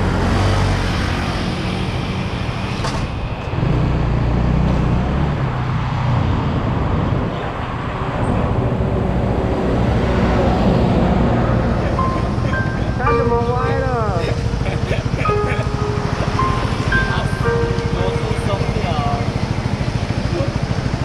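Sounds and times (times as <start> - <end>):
wind and road noise: 0.0 - 13.0.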